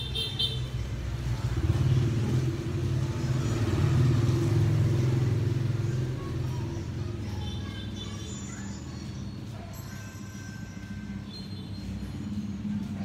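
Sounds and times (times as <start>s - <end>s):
vehicle engine running: 0.0s - 9.5s.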